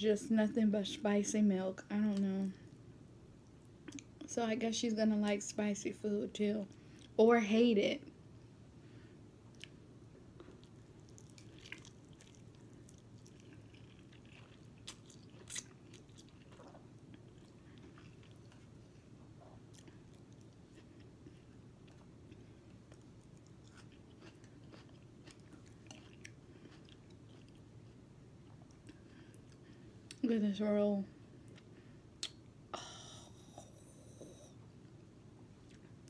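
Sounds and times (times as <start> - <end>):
low room hum: 0.0 - 36.0
chewing noodles: 10.4 - 29.7.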